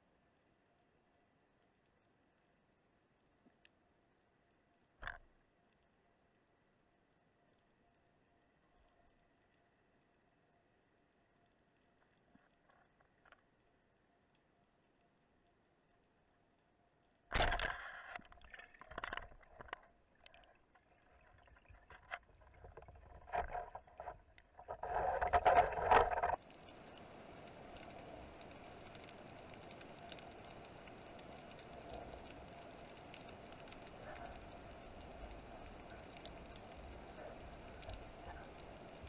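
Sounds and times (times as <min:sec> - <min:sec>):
water sloshing and gurgling: 0:17.3 - 0:39.0.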